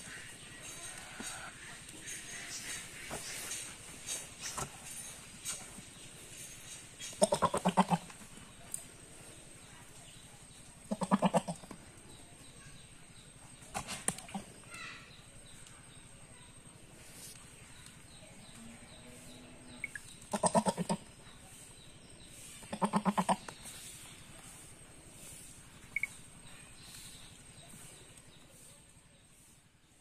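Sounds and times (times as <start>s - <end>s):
goat bleating: 7.2s - 8.1s, 10.9s - 11.7s, 20.3s - 21.0s, 22.7s - 23.4s.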